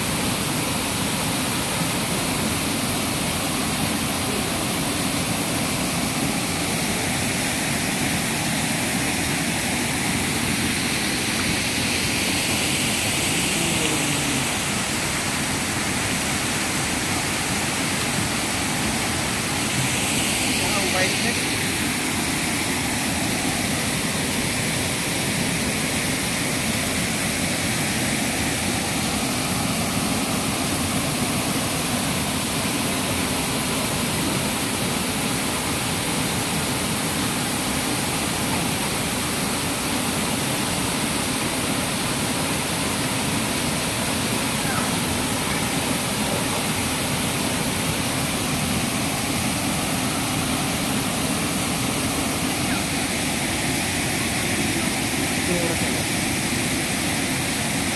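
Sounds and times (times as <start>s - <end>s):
waterfall rushing: 0.0s - 57.9s.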